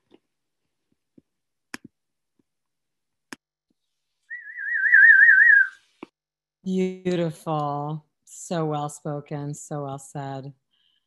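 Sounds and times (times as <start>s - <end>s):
warbling whistle: 4.3s - 5.8s.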